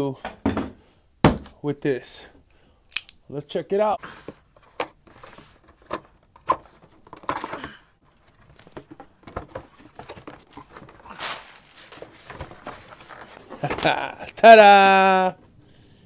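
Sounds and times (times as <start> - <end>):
packaging tearing and crinkling: 10.2 - 14.1
packaging ripping: 10.5 - 14.0.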